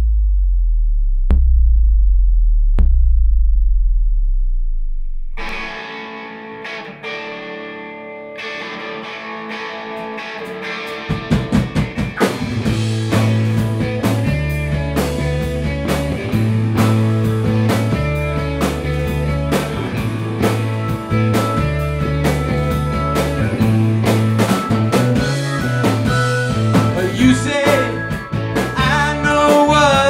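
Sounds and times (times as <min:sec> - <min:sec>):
bass guitar: 0:00.0 - 0:06.0, 0:11.0 - 0:30.0
electric guitar playing: 0:05.3 - 0:30.0
drum kit: 0:11.0 - 0:30.0.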